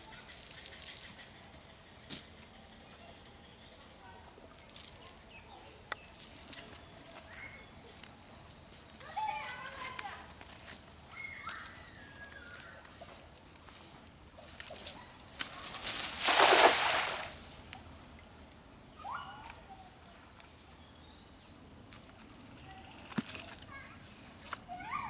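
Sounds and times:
net splashing into water: 15.7s - 17.4s.

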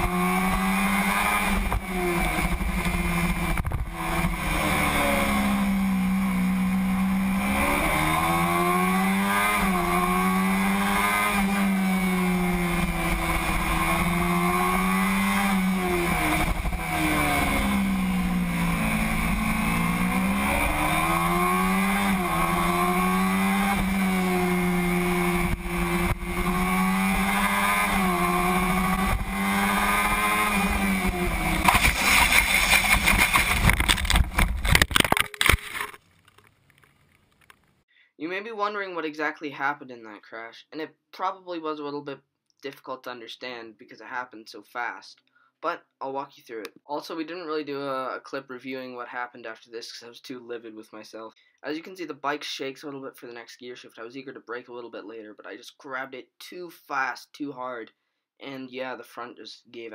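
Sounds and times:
motorcycle engine revving: 0.0s - 34.9s
motorcycle crashing: 28.8s - 37.8s.

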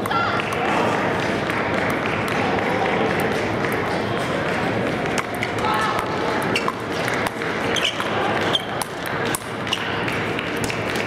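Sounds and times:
crowd murmur in a large hall: 0.0s - 11.0s.

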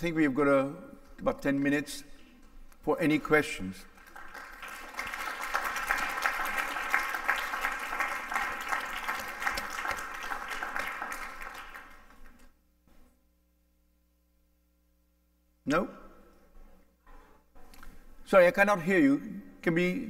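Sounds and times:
audience applauding: 4.0s - 12.5s.

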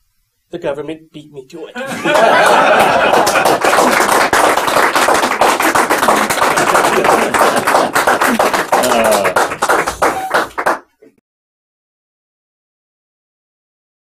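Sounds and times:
people laughing: 1.8s - 10.6s
small audience clapping: 1.9s - 11.2s.

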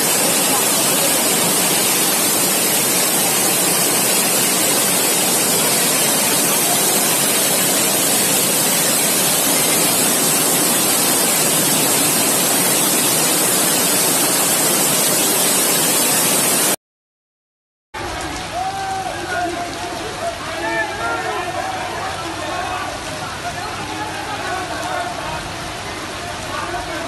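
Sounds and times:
floodwater rushing: 0.0s - 16.8s.

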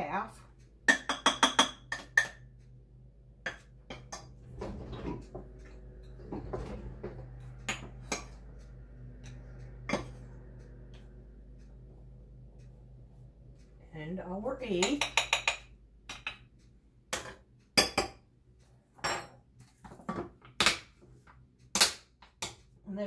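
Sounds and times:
cup rapping against bowl rim: 0.9s - 2.5s.

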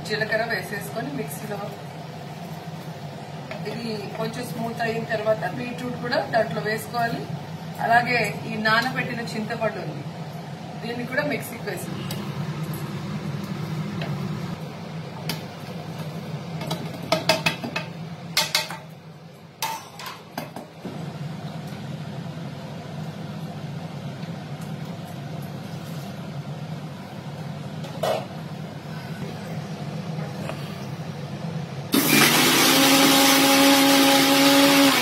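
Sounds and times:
steady low hum: 0.0s - 16.6s.

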